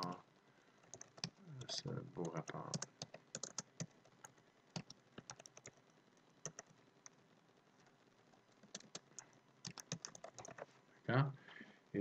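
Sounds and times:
keyboard typing: 0.0s - 0.2s, 0.8s - 7.2s, 7.8s - 10.7s.

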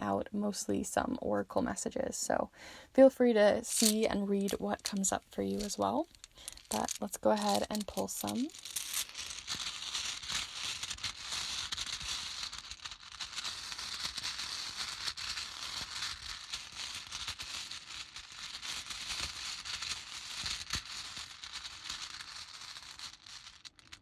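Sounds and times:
letter tiles clattering: 3.7s - 9.1s.

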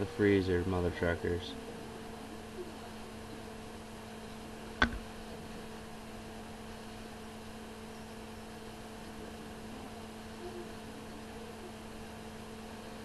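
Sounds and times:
electrical mains hum: 0.0s - 13.0s
sharp knock: 4.8s - 5.0s.

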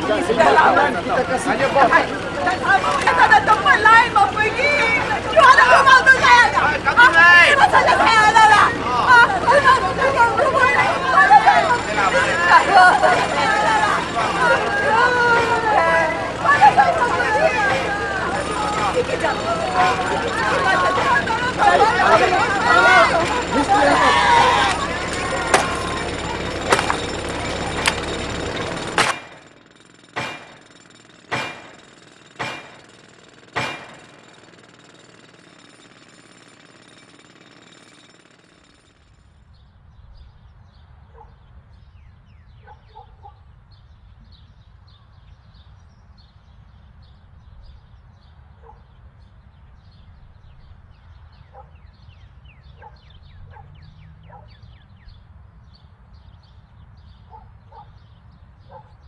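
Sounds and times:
loud noisy din: 0.0s - 34.6s
heavy ringing impacts: 0.2s - 39.4s.

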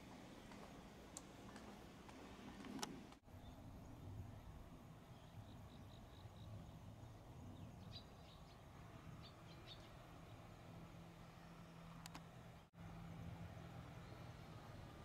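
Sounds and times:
small bird chirping: 3.3s - 10.5s.

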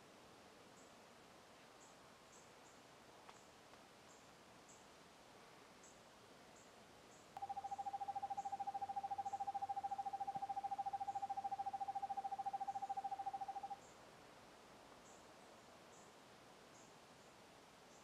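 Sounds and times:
owl trilling: 7.4s - 13.8s.

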